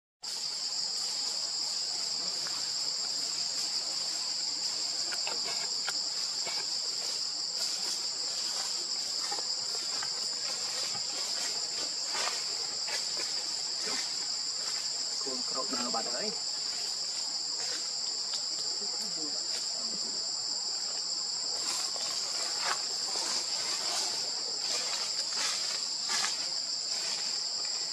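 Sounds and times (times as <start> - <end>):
high insect drone: 0.2 - 27.9.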